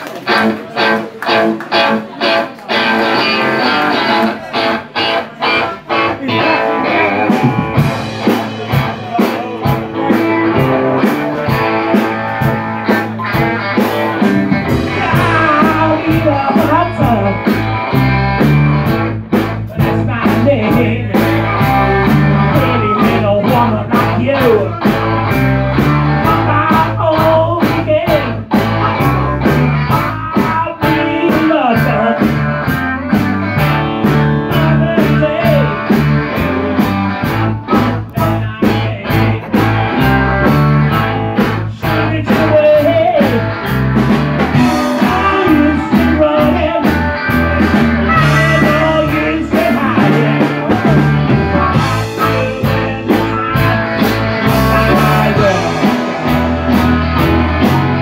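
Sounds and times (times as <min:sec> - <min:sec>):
bass: 0:00.0 - 0:58.0
electric guitars: 0:00.0 - 0:58.0
drum beat: 0:07.0 - 0:28.8, 0:42.3 - 0:58.0.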